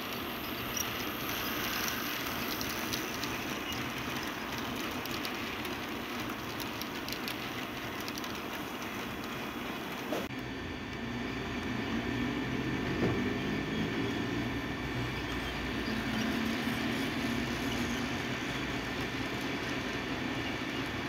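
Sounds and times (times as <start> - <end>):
model train wheels rattling on rails: 0.0 - 10.3, 15.0 - 21.0.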